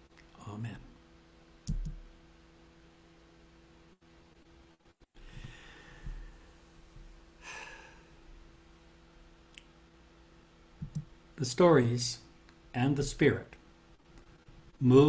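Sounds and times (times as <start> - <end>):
faint steady hum: 0.0 - 15.0
man breathing out: 5.2 - 6.5, 7.4 - 8.2.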